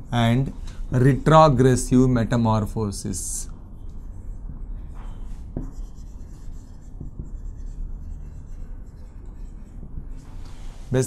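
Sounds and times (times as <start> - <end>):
low steady hum: 0.0 - 11.0
marker scratching on whiteboard: 3.8 - 11.0
light marker taps: 6.9 - 7.4.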